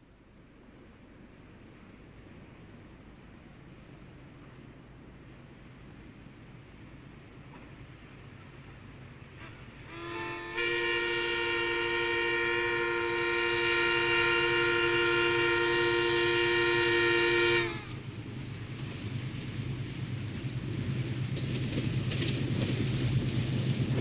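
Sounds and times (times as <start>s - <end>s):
locomotive horn blast: 9.4s - 18.1s.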